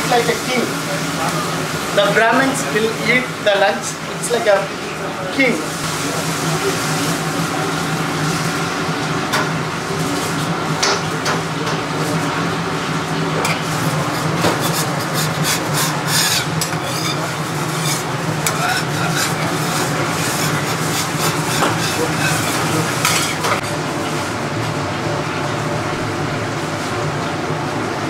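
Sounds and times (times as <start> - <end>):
low kitchen hum: 0.0 - 28.0
metal spatula scraping griddle: 13.4 - 23.6.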